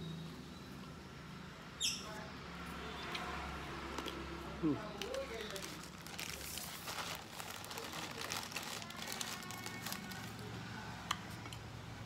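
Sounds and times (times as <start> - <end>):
crackers crackling: 3.8 - 10.6
plastic bag crinkling: 3.9 - 10.6.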